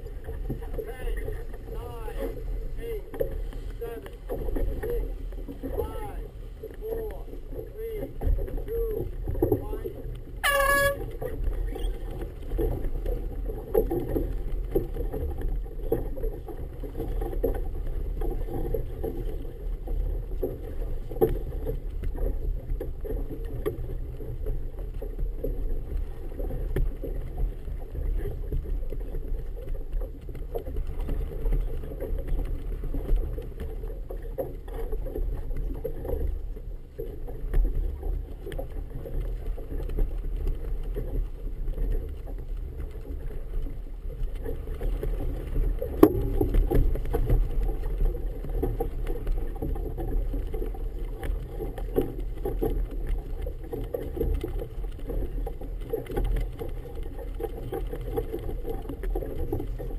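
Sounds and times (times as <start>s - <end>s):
wind rumbling: 0.0s - 14.7s
choppy water around a boat: 0.0s - 59.9s.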